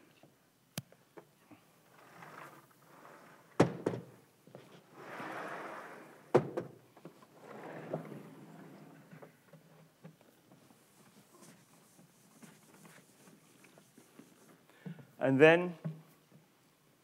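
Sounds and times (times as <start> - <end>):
chalkboard panels sliding: 1.9 - 9.7
rubbing sound: 4.6 - 6.3, 10.6 - 14.7.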